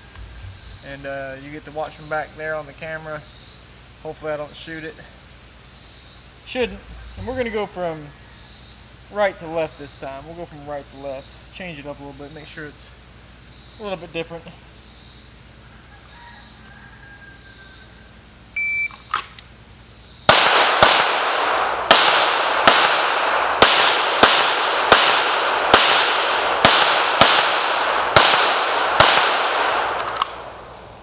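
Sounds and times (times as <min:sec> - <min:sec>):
pistol shots with echo: 0:20.3 - 0:30.8.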